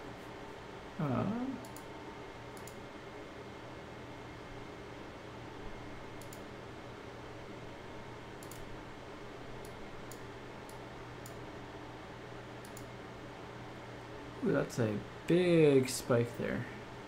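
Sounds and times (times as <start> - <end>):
low room hum: 0.0 - 17.0
faint sharp clicks: 2.5 - 2.8, 6.2 - 6.4, 8.4 - 8.7, 12.6 - 12.9.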